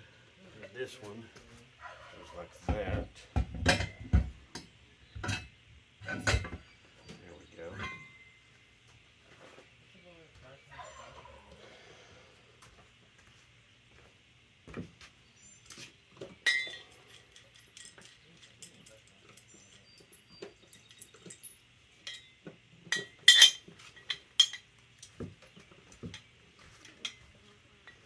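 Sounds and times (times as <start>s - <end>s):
metal hardware clinking: 16.4s - 25.2s.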